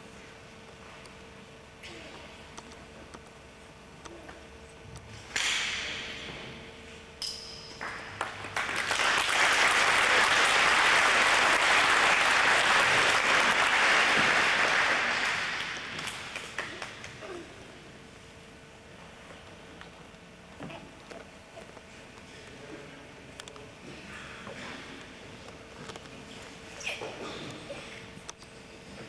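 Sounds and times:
sharp hits with ringing tone: 7.2s - 8.1s
audience clapping: 7.8s - 17.3s.

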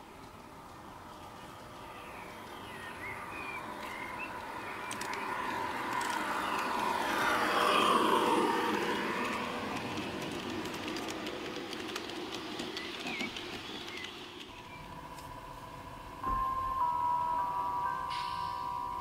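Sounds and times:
wheels rumbling on track: 0.0s - 19.0s
wheel clicks over rail joints: 4.7s - 7.8s, 8.8s - 14.6s.

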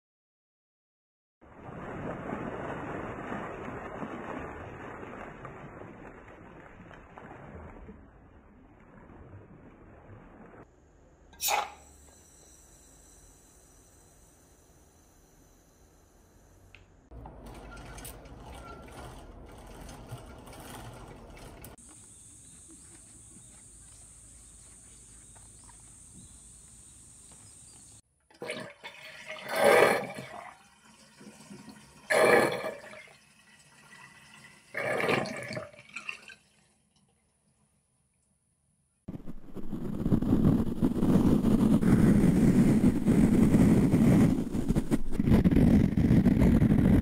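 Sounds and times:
water splashing: 1.4s - 10.7s, 28.4s - 36.8s.

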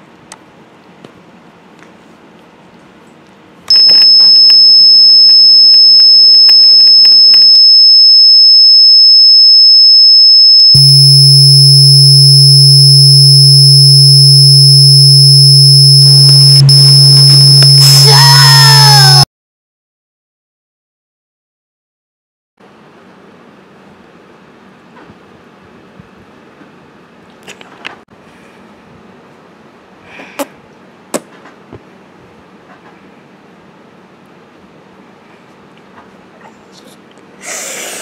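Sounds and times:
high-pitched electronic beep: 3.7s - 19.2s
deep hum: 7.5s - 19.2s
noisy wavering layer: 7.6s - 19.2s
harsh distorted electronic tone: 10.7s - 19.2s.

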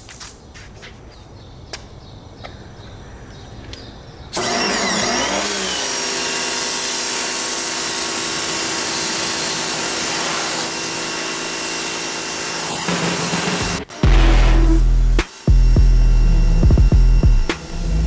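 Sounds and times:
electric motor hum: 4.4s - 18.0s
high-pressure water spray hissing: 6.9s - 13.7s.

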